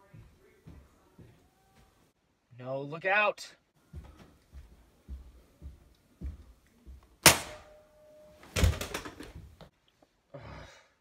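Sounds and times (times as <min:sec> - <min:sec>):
footsteps on carpeted stairs: 0:00.0 - 0:02.1, 0:03.8 - 0:07.2
body tumbling down stairs: 0:08.4 - 0:09.7.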